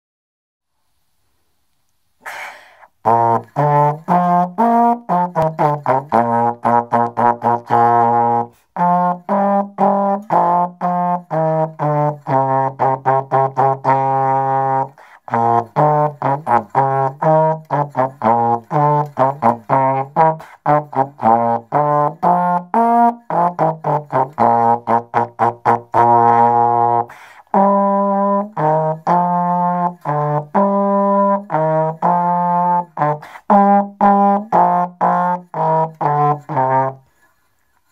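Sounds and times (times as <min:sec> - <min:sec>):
solo trombone melody: 0:02.3 - 0:37.4.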